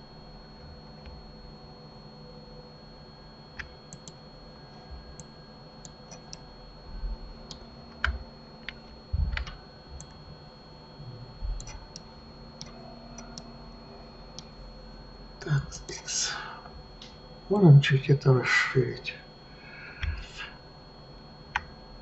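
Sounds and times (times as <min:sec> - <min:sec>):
steady faint hum: 0:00.0 - 0:22.0
computer keyboard and mouse clicks: 0:07.5 - 0:10.2, 0:11.6 - 0:12.0, 0:21.5 - 0:21.7.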